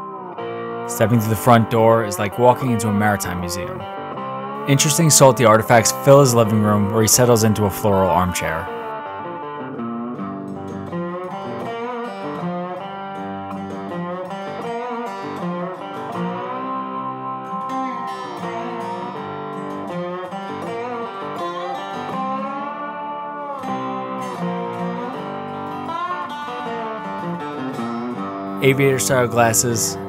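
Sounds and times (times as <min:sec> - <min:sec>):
plucked guitar melody: 0:00.0 - 0:30.0.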